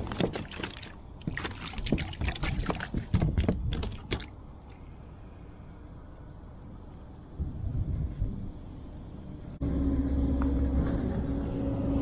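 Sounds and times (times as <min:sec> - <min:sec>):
water and wind wash: 0:00.0 - 0:04.8.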